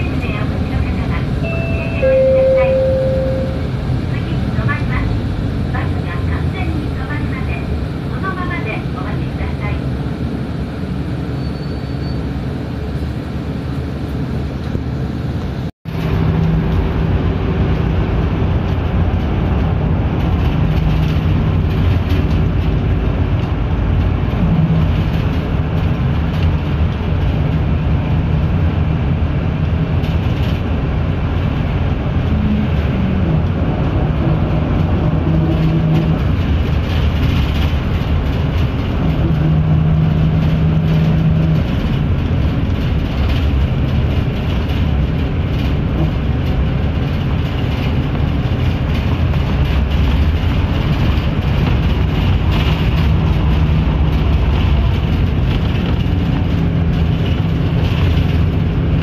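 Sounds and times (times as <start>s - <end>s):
bus engine and road drone: 0.0s - 59.0s.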